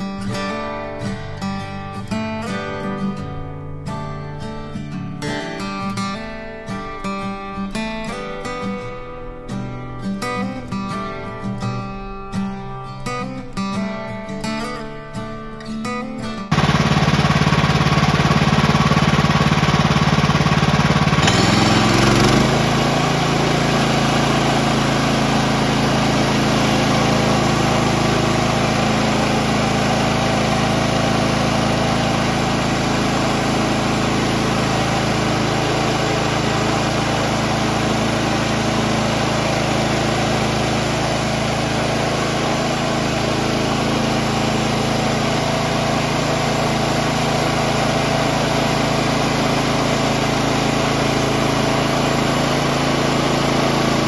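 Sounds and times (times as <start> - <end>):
bandsaw mill cutting log: 16.5 - 54.0.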